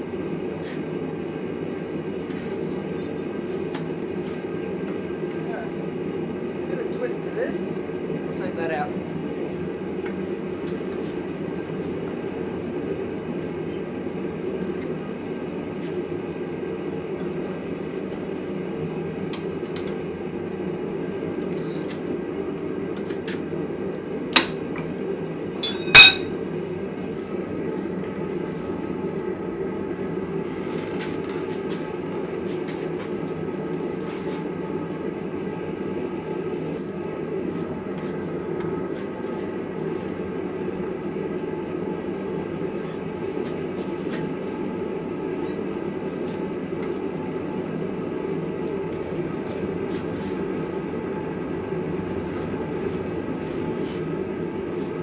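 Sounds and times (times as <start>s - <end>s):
metal clinks: 25.6s - 26.4s
steel clanking on steel: 25.6s - 26.4s.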